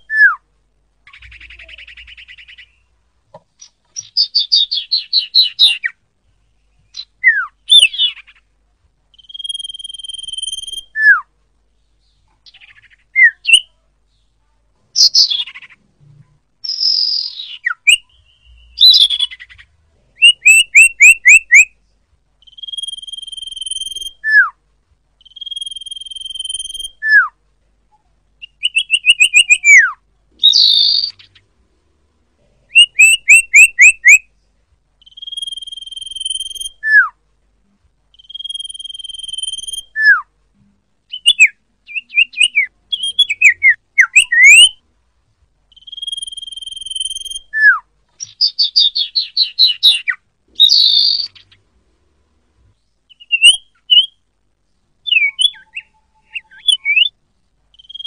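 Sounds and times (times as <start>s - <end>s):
bird whistling calls: 0.0s - 0.4s, 1.1s - 2.9s, 3.6s - 5.9s, 6.9s - 8.4s, 9.2s - 11.3s, 12.5s - 13.6s, 16.6s - 21.7s, 22.4s - 24.6s, 25.2s - 27.3s, 28.4s - 31.4s, 32.7s - 34.2s, 35.0s - 37.2s, 38.2s - 40.3s, 41.1s - 44.8s, 45.7s - 51.6s, 53.1s - 54.2s, 55.0s - 57.1s, 57.8s - 58.0s
harsh buzzy bird chatter: 1.0s - 2.9s, 48.2s - 51.6s.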